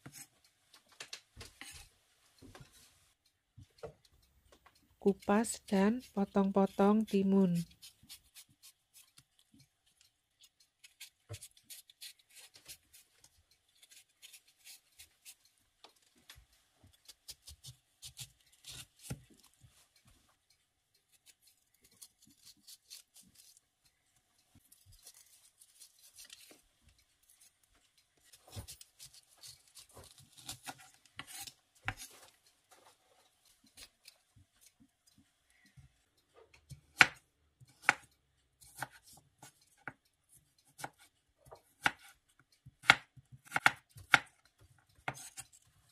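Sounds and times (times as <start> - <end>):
knife scraping cucumber: 1.6 - 1.9, 5.1 - 9.2, 10.4 - 13.1, 13.7 - 15.4, 17.0 - 19.5, 21.1 - 23.6, 24.8 - 26.6, 28.3 - 32.4, 45.1 - 45.6.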